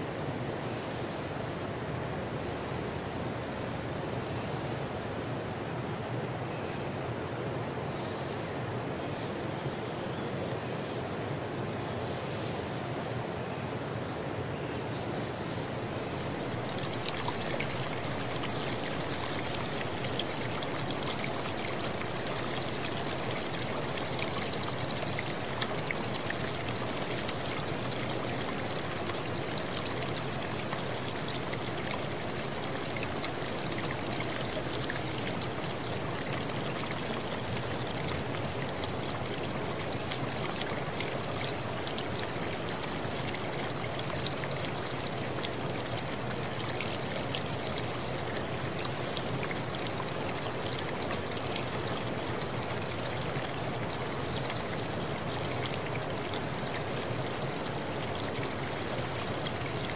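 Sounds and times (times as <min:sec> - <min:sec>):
water rushing in stream: 0:15.8 - 0:59.9
small splashes and drips: 0:16.0 - 0:59.9.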